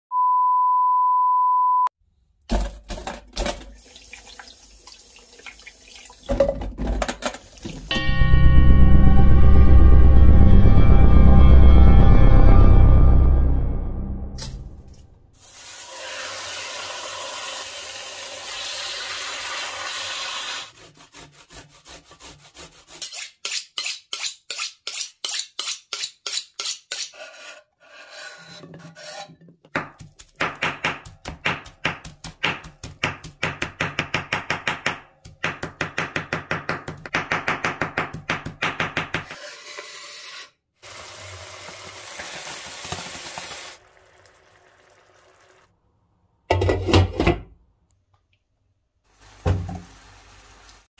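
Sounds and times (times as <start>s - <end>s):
chicken frying in a pan: 15.4s - 20.7s, 40.8s - 45.7s, 49.0s - 50.9s
knife chopping on wooden board: 29.7s - 39.3s.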